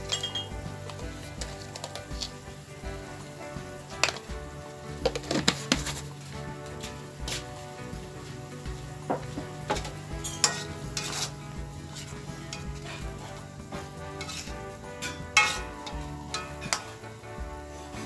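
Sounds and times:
spatula clanking on pan: 0.0 - 2.3, 8.9 - 17.1
food sizzling in oil: 0.0 - 18.0
spatula scraping a wok: 0.0 - 18.0.

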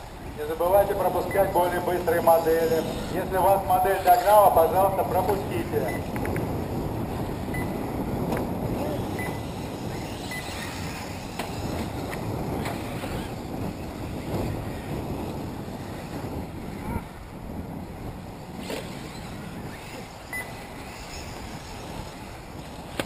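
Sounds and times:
electric rc buggies running: 0.0 - 23.0
wind rumbling on microphone: 0.0 - 23.0.

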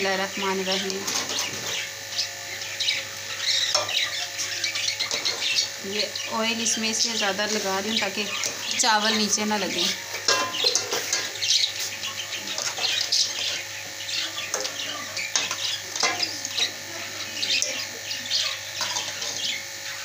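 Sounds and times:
metal ladle scraping pots: 5.0 - 5.6, 7.3 - 13.7, 14.4 - 16.8, 18.8 - 19.5.

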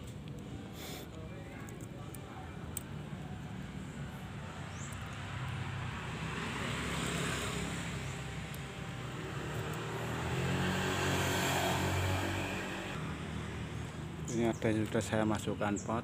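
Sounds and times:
distant engine drone: 3.5 - 14.4.

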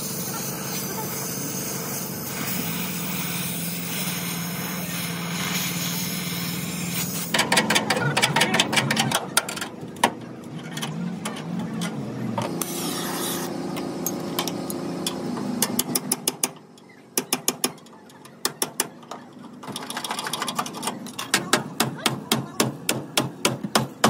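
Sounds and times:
steady mechanical noise: 0.0 - 24.0
rapid metal taps: 17.2 - 19.2.

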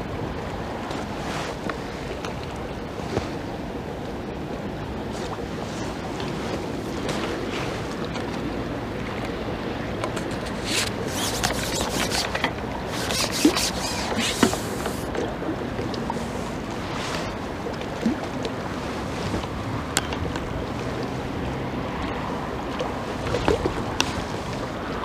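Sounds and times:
river water flowing: 0.0 - 25.0
clicks and rustles: 10.0 - 15.1.

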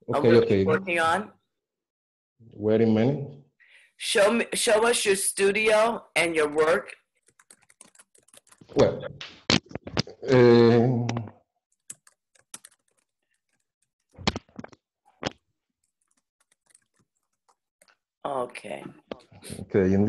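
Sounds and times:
man talking over video call: 0.0 - 1.2, 2.4 - 3.5, 8.7 - 9.2, 10.1 - 11.3, 19.2 - 20.0.

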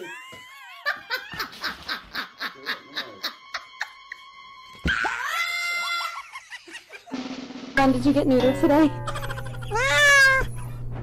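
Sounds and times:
woman laughing breathily: 0.0 - 2.4
parrot screeching: 4.8 - 6.2, 9.1 - 10.6.

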